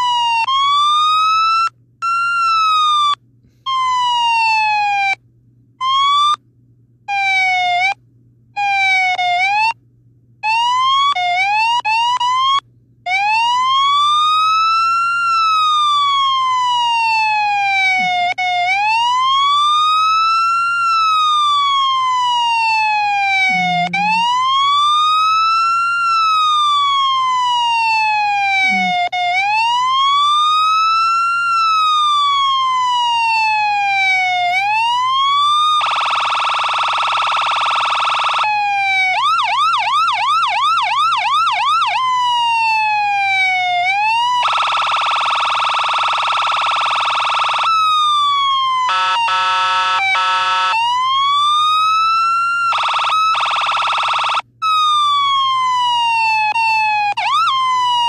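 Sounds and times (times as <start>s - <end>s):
police siren wailing: 0.0s - 5.2s, 5.8s - 6.4s, 7.1s - 8.0s, 8.6s - 9.8s, 10.4s - 58.0s
siren yelp: 0.0s - 5.2s, 5.8s - 6.4s, 7.1s - 8.0s, 8.6s - 9.8s, 10.4s - 58.0s
siren horn blast: 16.8s - 18.5s, 22.1s - 25.4s, 27.9s - 29.2s, 48.4s - 51.0s.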